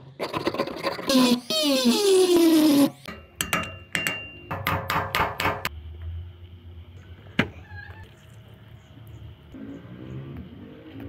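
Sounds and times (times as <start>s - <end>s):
hammer striking metal punch: 3.1s - 5.7s.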